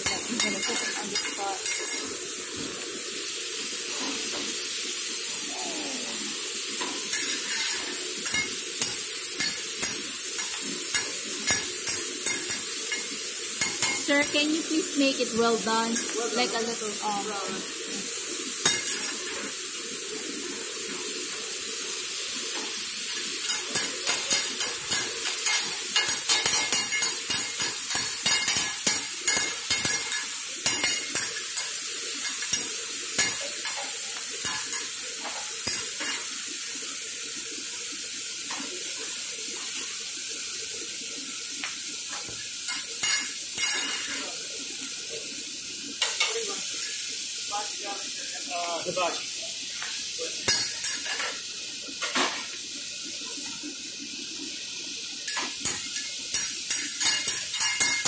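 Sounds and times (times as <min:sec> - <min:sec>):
metal spatulas scraping and clacking: 0:00.0 - 0:02.1, 0:07.1 - 0:14.3, 0:18.6 - 0:19.3, 0:23.2 - 0:36.3, 0:55.3 - 0:58.0
meat sizzling on a griddle: 0:00.0 - 0:58.0.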